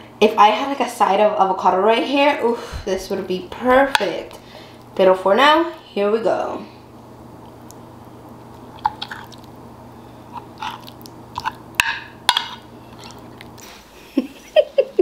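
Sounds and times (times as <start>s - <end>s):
low steady hum: 0.0s - 15.0s
chewing mouth sounds: 8.7s - 9.5s, 10.4s - 11.6s.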